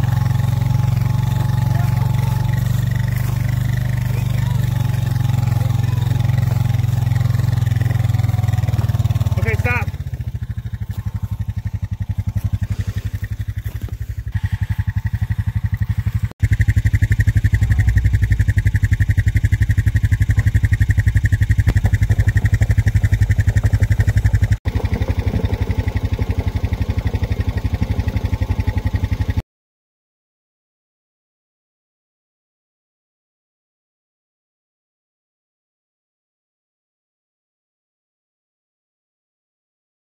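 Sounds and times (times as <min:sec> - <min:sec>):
atv engine puttering: 0:00.0 - 0:29.4.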